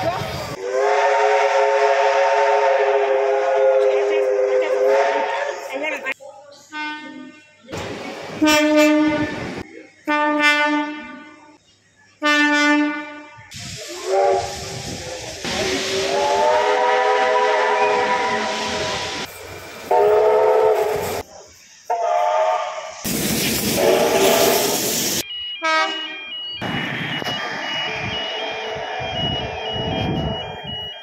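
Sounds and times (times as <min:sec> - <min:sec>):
steam locomotive whistle chord: 0:00.6 - 0:05.6, 0:15.8 - 0:19.3, 0:19.9 - 0:21.2, 0:23.8 - 0:31.0
train horn blasts: 0:00.6 - 0:05.7, 0:08.4 - 0:09.4, 0:10.1 - 0:11.4, 0:12.2 - 0:14.6, 0:16.0 - 0:19.2, 0:19.9 - 0:21.2, 0:21.9 - 0:22.9, 0:23.8 - 0:24.7, 0:25.6 - 0:26.2.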